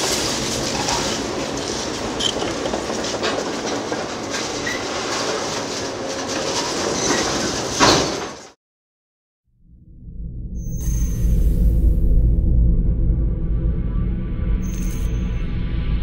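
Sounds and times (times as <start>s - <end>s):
demolition machinery crunching concrete: 0.0s - 8.6s.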